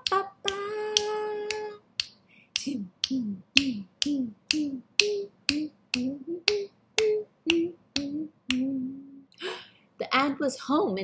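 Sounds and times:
finger snaps: 0:00.0 - 0:09.0
walking bass notes: 0:02.6 - 0:09.1.

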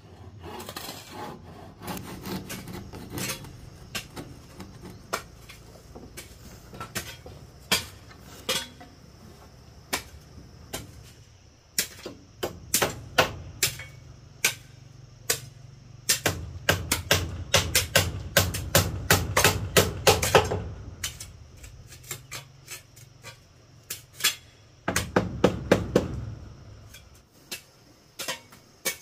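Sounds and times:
hammer blows on wooden boards: 0:11.8 - 0:21.4, 0:24.2 - 0:27.2.

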